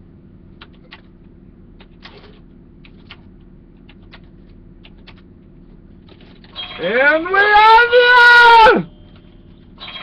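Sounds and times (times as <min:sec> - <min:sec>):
low electrical hum: 0:00.0 - 0:10.0
keyboard keys clicking: 0:00.6 - 0:01.1, 0:01.8 - 0:05.3.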